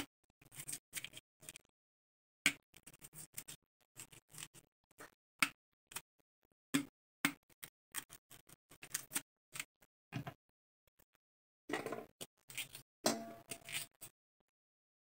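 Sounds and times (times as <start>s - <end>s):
knife scraping root skin: 13.5s - 14.1s.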